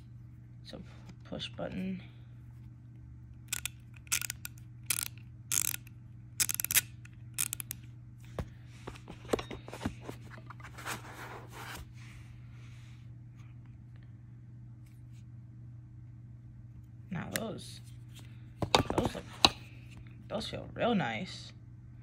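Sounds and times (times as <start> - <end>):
ratchet metallic clicks: 3.5 - 7.8.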